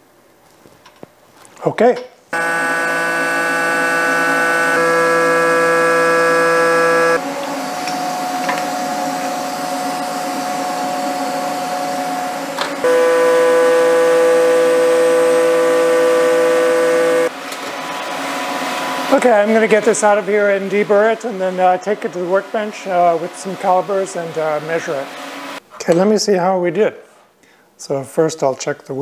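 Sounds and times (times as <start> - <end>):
milling cutter singing tone: 2.4 - 7.9, 12.8 - 17.3.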